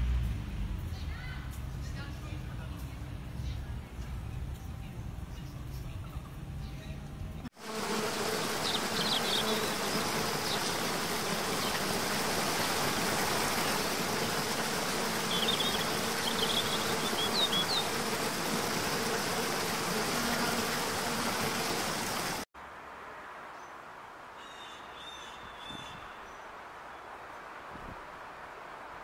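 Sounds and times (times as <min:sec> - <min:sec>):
waterfall rushing: 0:08.1 - 0:22.5.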